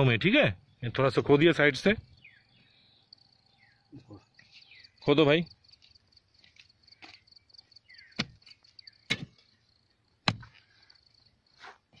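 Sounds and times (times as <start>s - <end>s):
insects chirping: 0.0s - 12.0s
digging tool striking dry soil: 7.9s - 9.5s, 10.2s - 10.7s.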